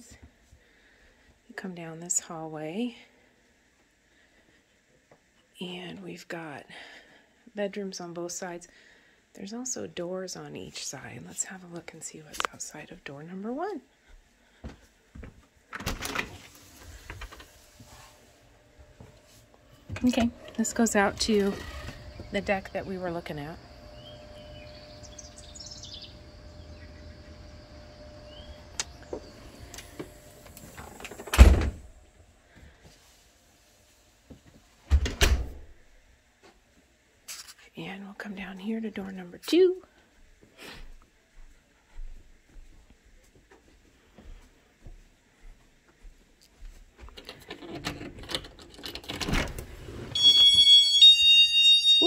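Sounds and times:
loud high steady tone: 20.0s - 30.5s, 50.2s - 52.0s
birds chirping: 20.2s - 30.2s
insect drone: 20.6s - 31.7s
door shutting with a thud: 29.1s - 31.9s, 34.9s - 35.7s
door knob and latch rattling: 47.2s - 49.6s.

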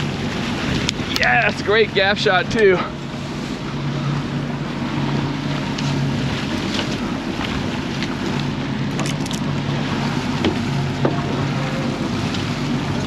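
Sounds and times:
wind on microphone: 0.0s - 2.8s
churning wake water: 0.0s - 13.0s
outboard motors droning: 0.0s - 13.0s.

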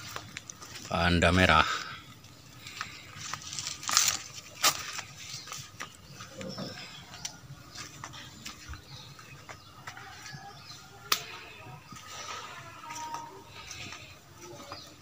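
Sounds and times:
footsteps crunching on dry leaves: 0.0s - 1.6s, 2.6s - 15.0s
foliage rustling: 0.0s - 9.3s.

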